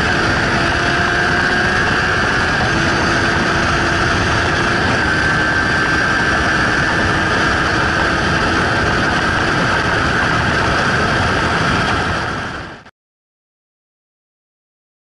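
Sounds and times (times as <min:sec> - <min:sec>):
motorcycle engine at speed: 0:00.0 - 0:12.9
steady high whine: 0:00.0 - 0:12.9
wind rush: 0:00.0 - 0:12.9.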